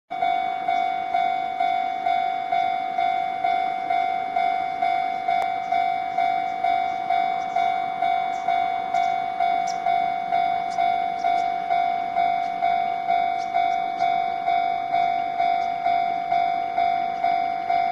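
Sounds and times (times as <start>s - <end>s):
level crossing warning bell: 0.1s - 17.9s.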